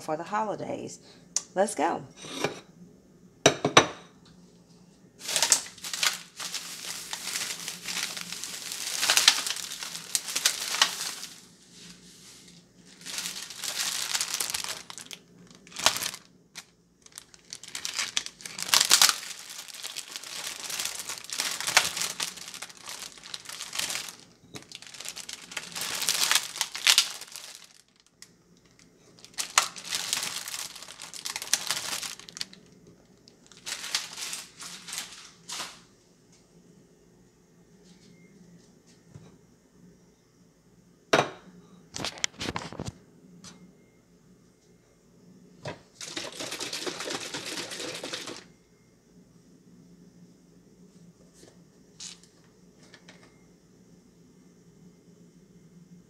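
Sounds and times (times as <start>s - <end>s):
plate knocking on counter: 3.5s - 4.1s, 41.2s - 41.4s
plastic food package crinkling: 5.2s - 11.5s, 12.8s - 35.8s, 42.0s - 42.9s, 46.0s - 48.5s.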